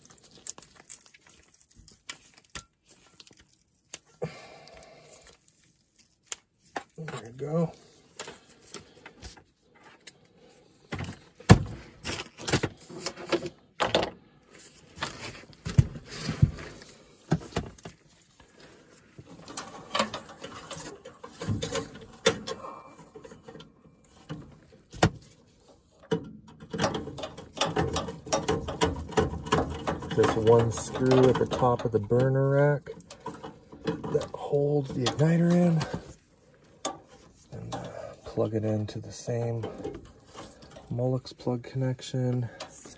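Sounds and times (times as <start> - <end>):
hands handling metal parts: 0.0 - 42.9.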